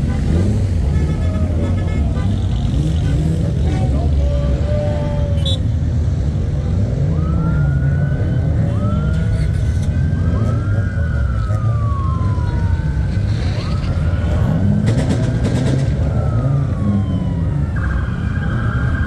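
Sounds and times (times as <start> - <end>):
low engine rumble: 0.0 - 17.6
siren wailing: 6.8 - 19.0.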